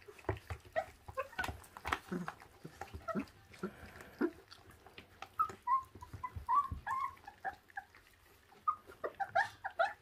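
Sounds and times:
chewing clicks: 0.0s - 6.3s
puppies whimpering: 0.0s - 10.0s.

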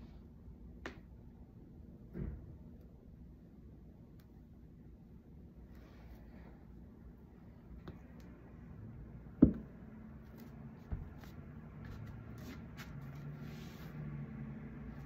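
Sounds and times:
faint steady hum: 0.0s - 15.0s
bare feet thumping on yoga mat: 9.4s - 9.7s, 10.9s - 12.1s.

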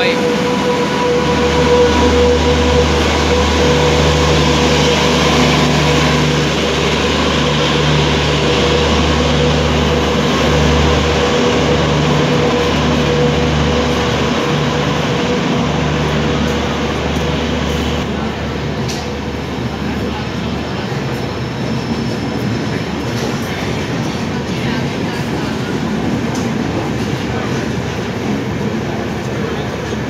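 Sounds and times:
locomotive high tone: 0.0s - 23.8s
train wheels rumbling on rail: 0.0s - 30.0s.

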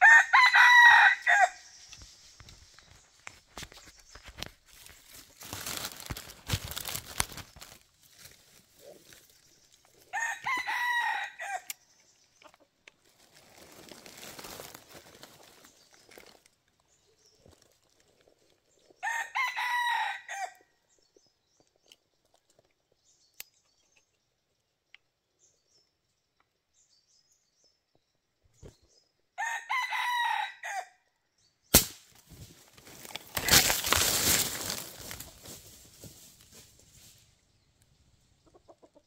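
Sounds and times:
rooster crowing: 0.0s - 1.6s, 10.1s - 11.8s, 19.0s - 20.6s, 29.4s - 31.0s
flapping and rustling in dry leaves: 1.7s - 10.1s, 13.0s - 18.7s, 32.1s - 37.4s
sharp snap: 31.7s - 32.2s.

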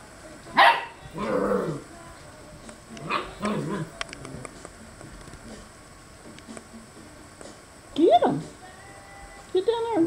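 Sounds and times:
small dog barking: 0.6s - 1.4s, 3.0s - 3.9s.

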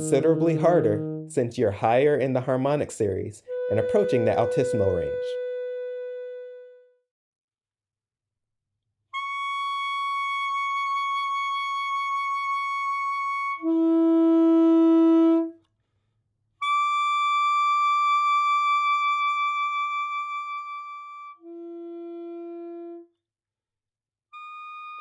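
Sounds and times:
saxophone overtone notes: 0.0s - 2.6s, 3.5s - 6.9s, 13.5s - 15.6s, 16.6s - 23.1s.

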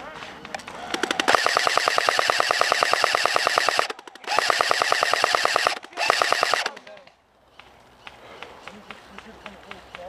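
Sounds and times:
airsoft gun firing full auto: 0.9s - 6.9s.

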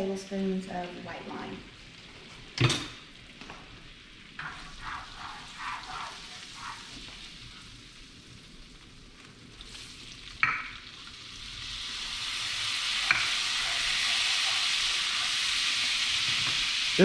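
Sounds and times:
sauce sizzling in a skillet: 0.9s - 17.0s.

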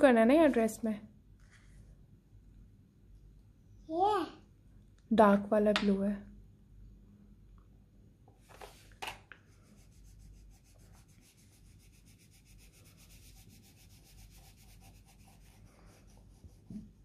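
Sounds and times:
crayon scribbling on paper: 9.6s - 17.0s.

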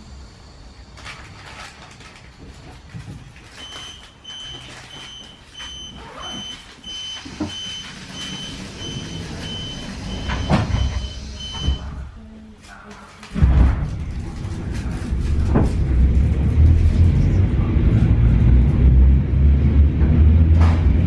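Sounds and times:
short high warning beeps: 3.6s - 12.0s
sliding doors thudding shut: 7.2s - 12.1s.

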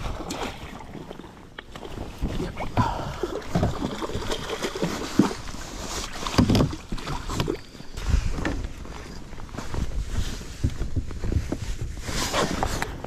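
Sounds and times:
wind buffeting microphone: 6.4s - 13.0s.

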